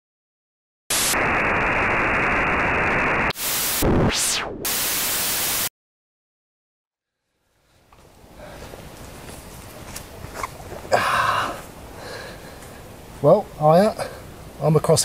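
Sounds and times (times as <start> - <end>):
fast electronic sweep: 0.9 - 5.7
tv static hiss: 0.9 - 5.7.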